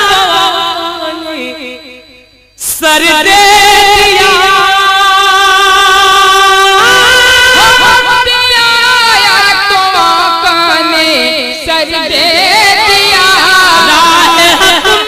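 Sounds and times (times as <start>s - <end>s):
solo voice singing: 0.0s - 15.0s.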